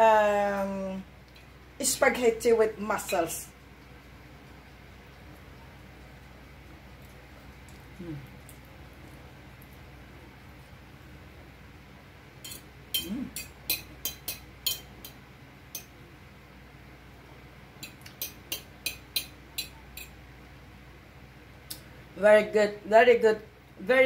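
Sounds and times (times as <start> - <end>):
metal fork clinking on plate: 12.4 - 16.0, 17.8 - 20.2.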